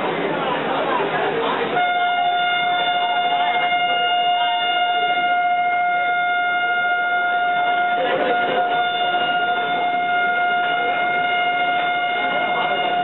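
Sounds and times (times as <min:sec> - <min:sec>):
long train horn: 0:01.7 - 0:13.0.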